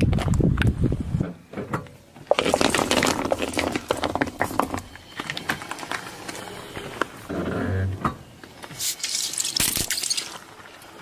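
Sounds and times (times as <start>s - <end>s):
cup crushed by tyre: 2.2s - 6.0s, 8.9s - 10.5s
tyre rumble on road: 2.2s - 7.3s.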